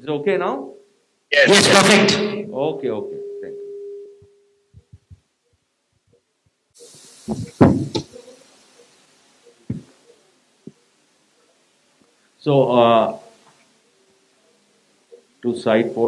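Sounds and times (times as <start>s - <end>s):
low steady hum: 1.6s - 5.2s
microphone handling thumps: 4.8s - 5.3s, 7.3s - 8.2s, 9.6s - 10.0s
hiss: 6.8s - 9.9s
knock: 7.3s - 8.1s.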